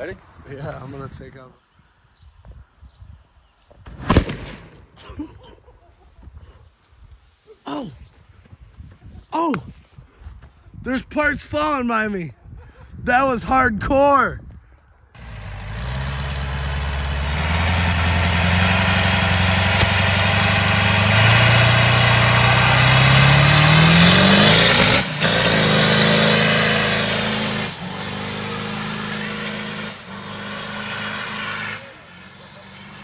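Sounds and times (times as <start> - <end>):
pickup truck engine revving: 15.2 - 33.0
spinning tires hissing: 15.2 - 33.0.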